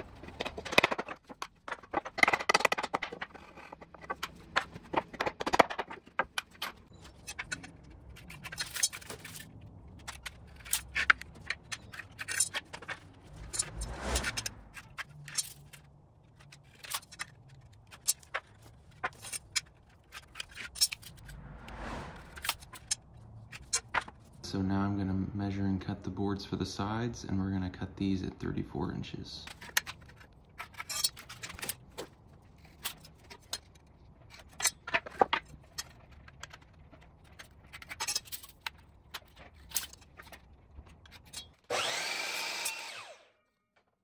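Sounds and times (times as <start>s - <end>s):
wooden boards knocking and scraping: 0.0s - 7.5s.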